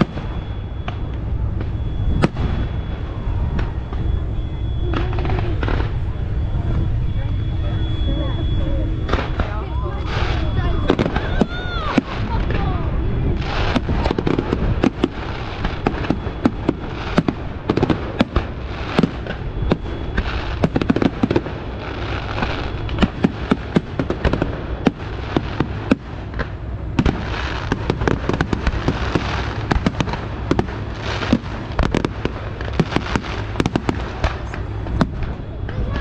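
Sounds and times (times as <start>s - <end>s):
fireworks crackling: 0.0s - 36.0s
low rumble: 0.0s - 36.0s
firework shells bursting: 9.1s - 35.8s.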